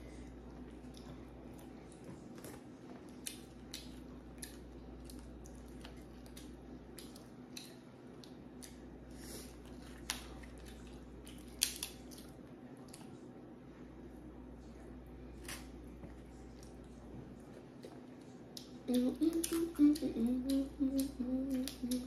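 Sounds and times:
low steady hum: 0.0 - 22.0
clicks and crackles of chewing seafood: 0.5 - 13.4.

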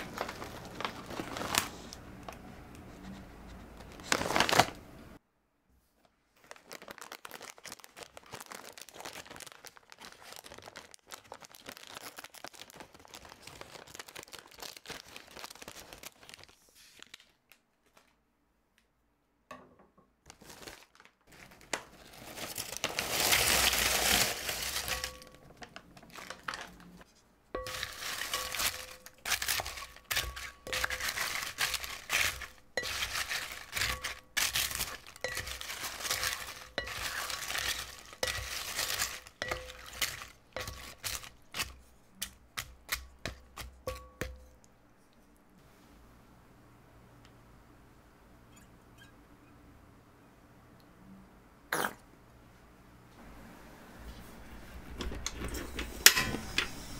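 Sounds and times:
chip bag crinkling: 0.0 - 2.3, 3.9 - 4.8, 6.4 - 18.1, 20.3 - 43.4
chips crunching in a glass bowl: 27.6 - 41.8.

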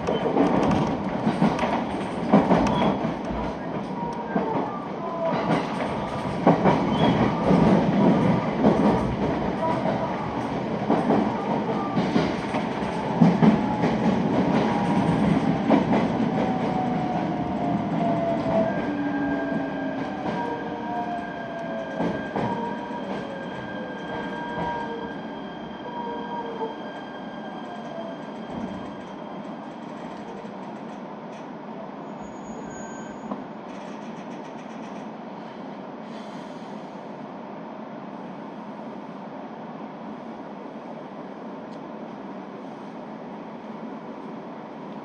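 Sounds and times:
train running and rail clatter: 0.0 - 45.0
brakes and wheels squealing: 32.1 - 33.4.

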